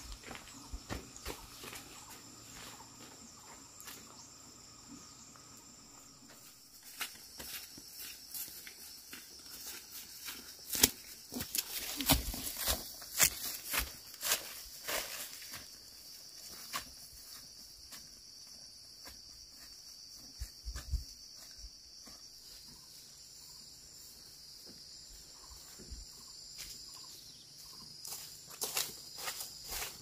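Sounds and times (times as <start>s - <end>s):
insects chorus: 0.0s - 30.0s
footsteps on dry leaves: 6.4s - 17.0s, 27.6s - 30.0s.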